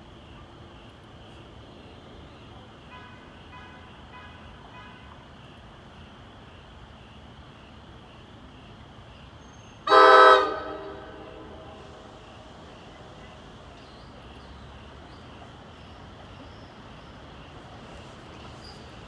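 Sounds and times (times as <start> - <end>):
train horn blast: 9.9 - 12.1.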